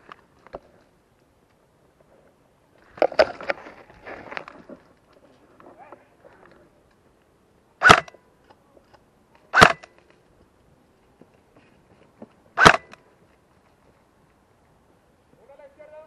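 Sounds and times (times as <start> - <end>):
airsoft rifle shots: 7.8 - 8.2, 9.5 - 10.0, 12.6 - 13.0.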